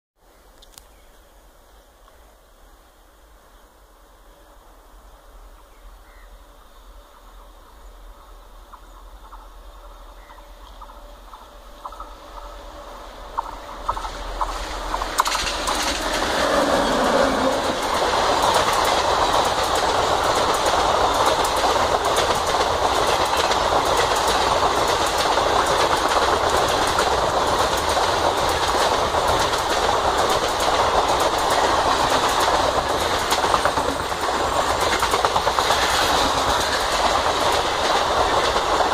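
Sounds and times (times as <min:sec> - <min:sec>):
train passing at speed: 0:04.0 - 0:38.9
wheels clicking over rail joints: 0:13.2 - 0:38.9.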